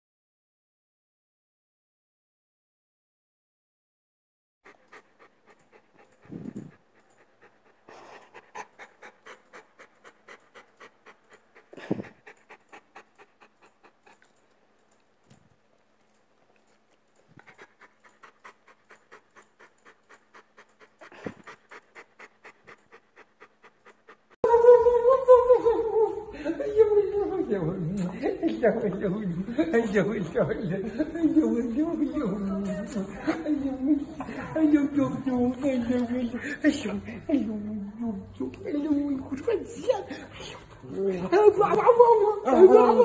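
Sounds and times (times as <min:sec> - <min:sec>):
dog panting: 0:04.6 - 0:15.4, 0:16.0 - 0:24.4, 0:39.4 - 0:43.0.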